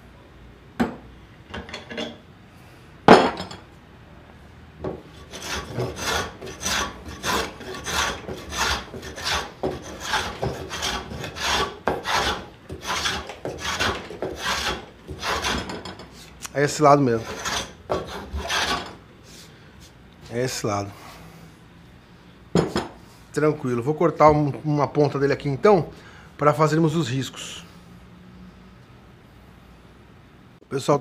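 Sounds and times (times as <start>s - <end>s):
hand plane shaving wood: 5.2s - 15.8s, 17.2s - 19.0s.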